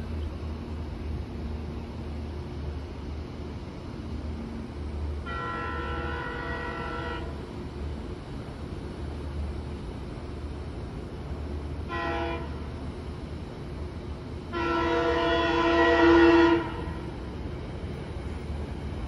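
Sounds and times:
train horn blasts: 5.2s - 7.4s, 11.8s - 12.6s, 14.5s - 17.0s.

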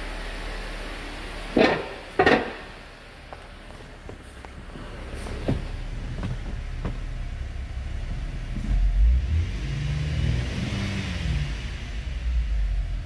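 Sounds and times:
car engine idling and revving: 0.0s - 13.0s.

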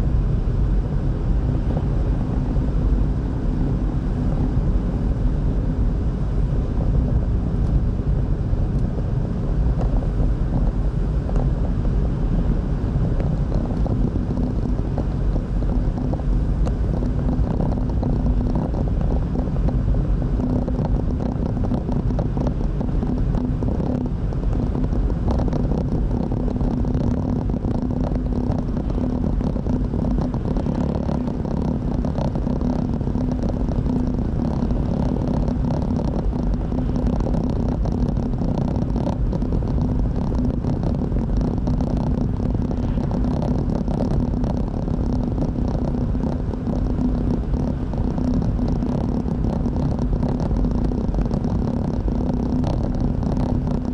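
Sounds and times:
car cabin road rumble: 0.0s - 53.9s.

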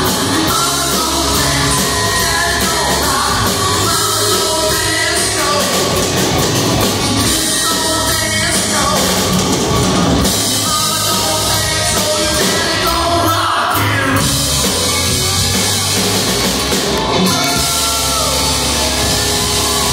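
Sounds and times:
person singing: 0.0s - 6.4s, 7.0s - 9.6s, 10.2s - 15.4s
distorted electric guitar: 0.0s - 19.9s
live hard rock band: 0.0s - 19.9s.

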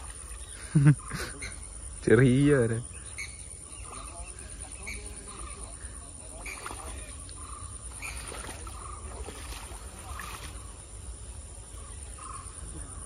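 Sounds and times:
muddy water sloshing and splashing: 0.0s - 0.8s, 4.1s - 11.3s.

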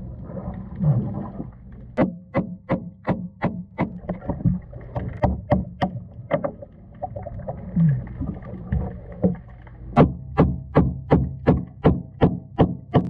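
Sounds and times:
hammer knocking on metal underwater: 2.0s - 6.6s, 10.0s - 13.0s.

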